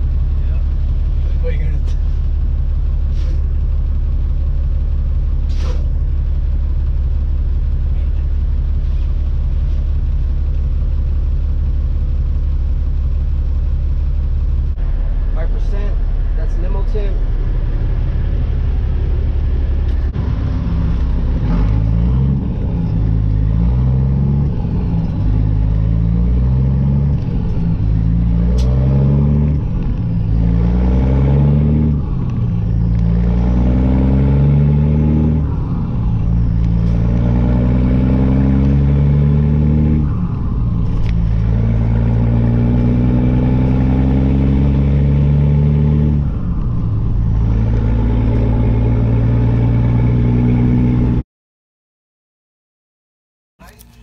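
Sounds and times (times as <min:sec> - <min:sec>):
diesel truck engine shifting gears: 0:00.0 - 0:51.2.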